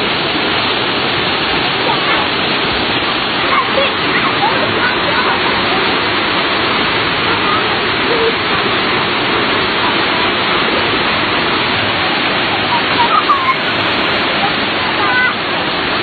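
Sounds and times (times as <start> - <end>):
waterfall rushing over rocks: 0.0 - 16.0
faint voices of people: 12.3 - 15.6.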